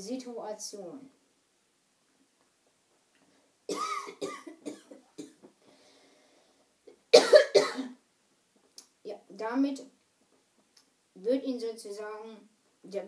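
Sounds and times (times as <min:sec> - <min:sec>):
woman coughing: 0:03.7 - 0:05.4, 0:07.1 - 0:08.0.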